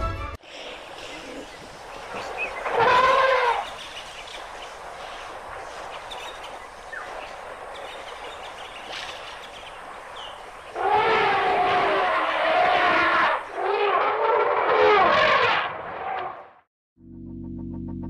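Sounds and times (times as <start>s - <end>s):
elephant trumpeting: 2.6s - 3.7s, 10.7s - 16.4s.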